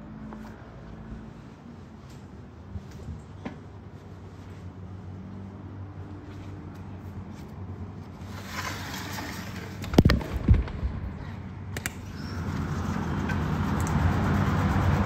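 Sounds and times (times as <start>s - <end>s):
street traffic: 0.0s - 15.0s
sliding glass door opening: 8.2s - 10.6s.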